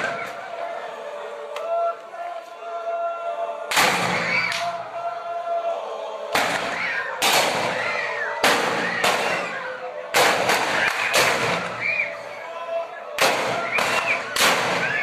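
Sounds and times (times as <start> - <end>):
crowd whooping and shouting: 0.0 - 15.0
loud echoing bangs: 3.7 - 4.7, 6.3 - 11.9, 13.2 - 15.0.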